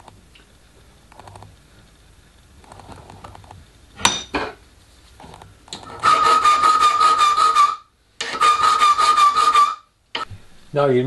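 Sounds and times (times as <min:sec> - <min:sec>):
file rasping on metal rod: 0:05.8 - 0:09.8.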